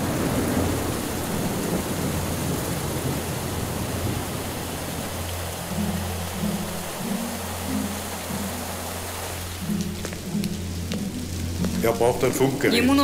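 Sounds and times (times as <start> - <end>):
steady rain falling: 0.0 - 13.0
low steady drone: 2.1 - 13.0
low musical notes: 4.0 - 13.0.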